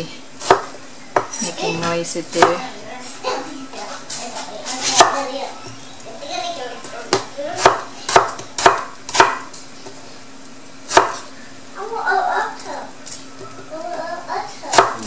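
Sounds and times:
knife chopping on wooden board: 0.4 - 1.4, 2.4 - 2.6, 4.8 - 5.2, 7.1 - 9.5, 10.9 - 11.2, 14.7 - 15.0.

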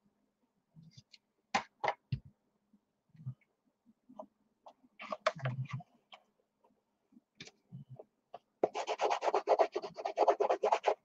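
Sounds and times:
rubbing on paper: 8.6 - 11.0.

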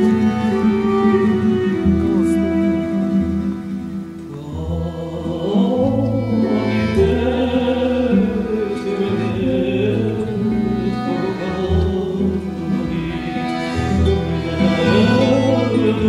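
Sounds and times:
violin playing folk melody: 0.0 - 16.0
button accordion: 5.9 - 16.0.

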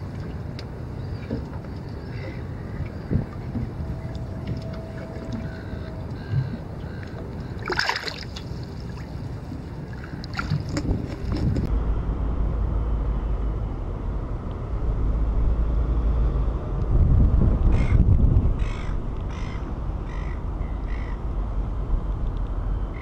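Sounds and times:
wind on microphone: 0.0 - 7.7, 9.4 - 12.0, 14.5 - 23.0
water splashing: 2.1 - 11.7.

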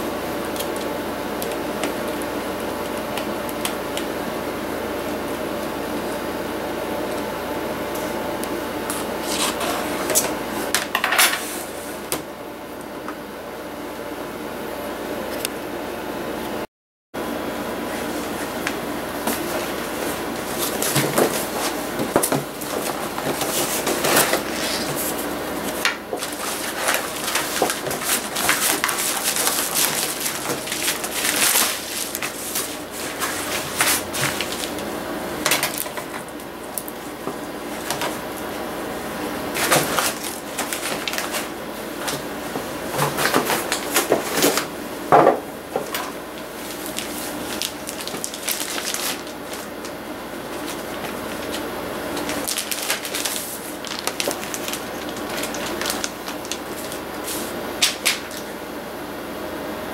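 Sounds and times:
cardboard being handled: 18.0 - 34.9, 39.5 - 44.7, 45.7 - 58.5
plastic packaging rustling: 18.0 - 38.6, 39.5 - 44.7, 45.7 - 58.5.

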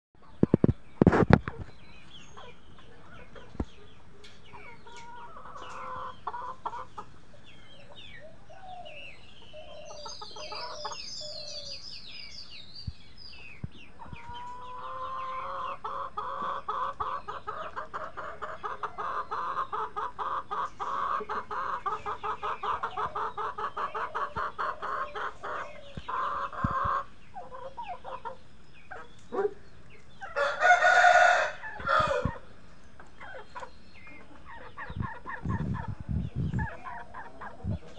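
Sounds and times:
chickens clucking: 0.2 - 37.9
rooster crowing: 30.3 - 32.4.

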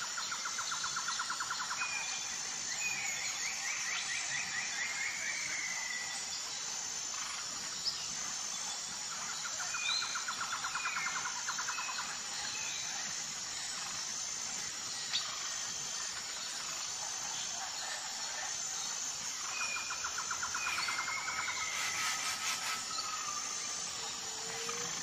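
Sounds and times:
insect hiss: 0.0 - 25.0
rapid bird trill: 19.7 - 25.0.

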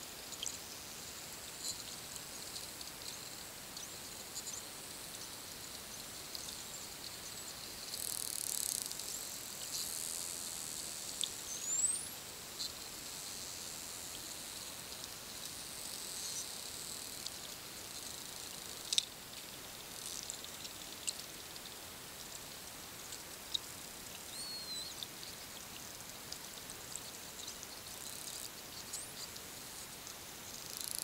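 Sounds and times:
dolphin echolocation clicks: 18.8 - 21.7.

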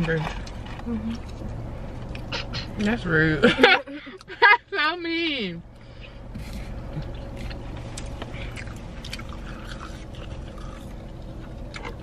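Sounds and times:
low hum inside car: 0.0 - 12.0
person chewing: 6.3 - 12.0.

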